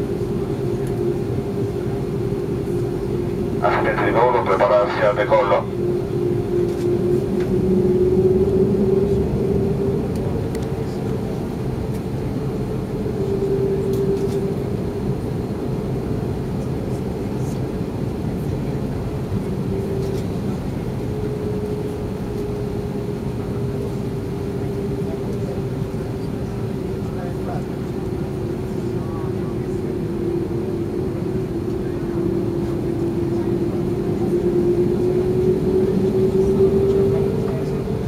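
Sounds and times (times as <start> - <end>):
airplane cabin rumble: 0.0 - 38.0
droning hum: 0.0 - 38.0.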